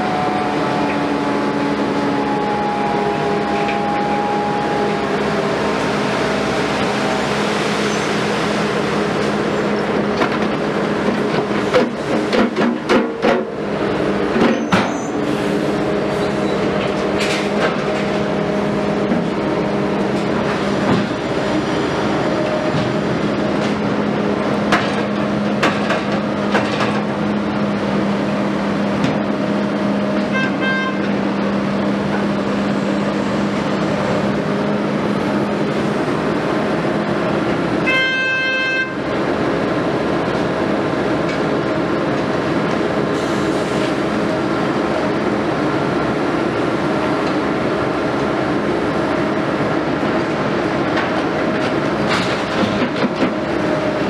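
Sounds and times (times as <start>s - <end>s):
horn-like tone: 0.0s - 5.2s, 30.3s - 31.1s, 37.8s - 39.0s
excavator engine and hydraulics hum: 0.0s - 54.0s.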